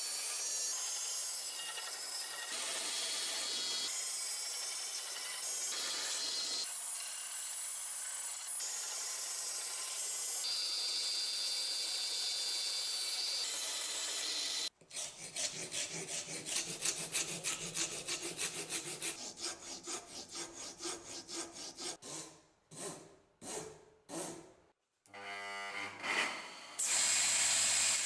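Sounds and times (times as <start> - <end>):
bandsaw cutting wood: 0.0 - 22.0
hand file rasping on wood: 14.8 - 24.4.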